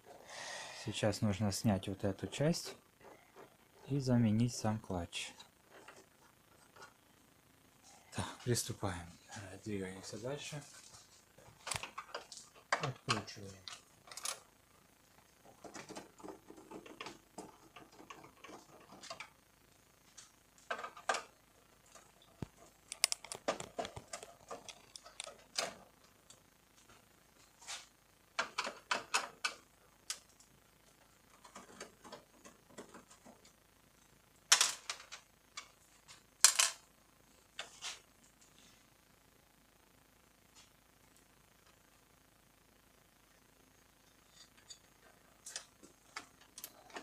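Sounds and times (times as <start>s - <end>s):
plastic parts clattering: 22.0s - 25.9s, 34.5s - 35.8s, 36.4s - 36.8s.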